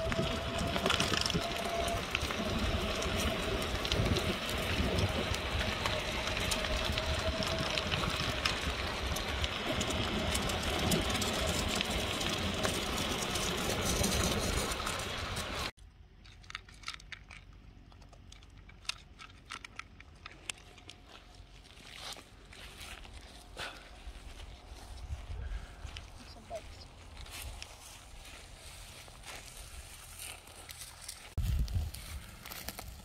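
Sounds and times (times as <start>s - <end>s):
tyre rolling noise: 0.0s - 15.7s
wind on microphone: 0.0s - 15.7s, 24.1s - 27.8s, 31.4s - 32.4s
dog eating from plastic bowl: 16.2s - 21.0s.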